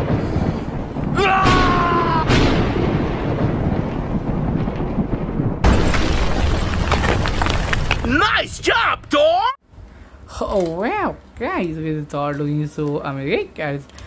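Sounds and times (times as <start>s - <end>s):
loud boom: 0.0s - 7.5s
rumbling explosion noise: 0.0s - 8.7s.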